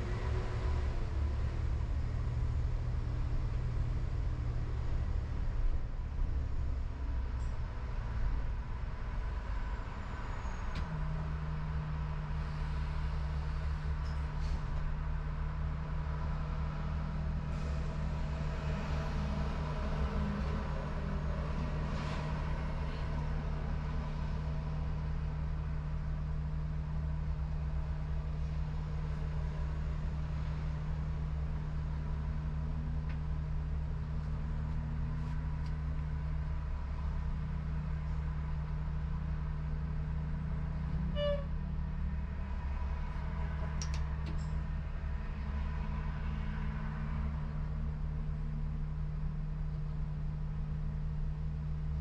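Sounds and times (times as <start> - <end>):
traffic passing: 0.0 - 49.4
short beep: 41.2 - 41.5.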